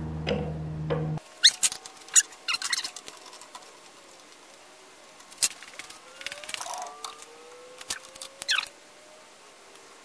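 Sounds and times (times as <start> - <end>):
faint rising tone: 5.7 - 9.7.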